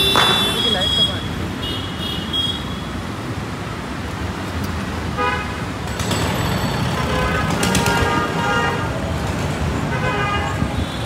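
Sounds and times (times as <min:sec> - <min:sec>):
vehicle horn: 0:00.0 - 0:02.9, 0:05.2 - 0:05.6, 0:07.0 - 0:08.9, 0:09.9 - 0:11.0
hum of traffic: 0:00.0 - 0:11.0.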